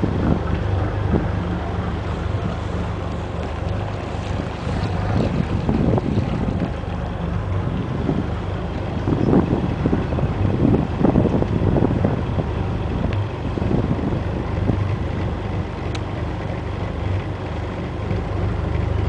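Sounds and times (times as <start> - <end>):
boat engine humming: 0.0 - 19.0
wind buffeting microphone: 0.0 - 19.0.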